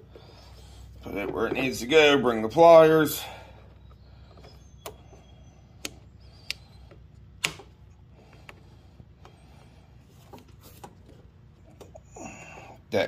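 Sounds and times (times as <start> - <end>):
low steady hum: 0.0 - 13.0.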